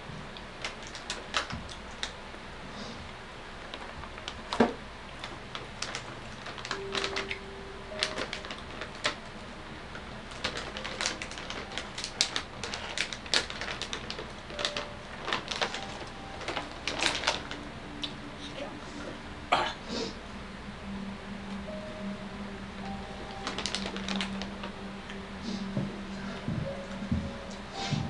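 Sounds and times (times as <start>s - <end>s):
plastic bag crinkling: 0.6s - 2.1s, 5.2s - 9.3s, 10.2s - 17.6s, 22.9s - 24.7s.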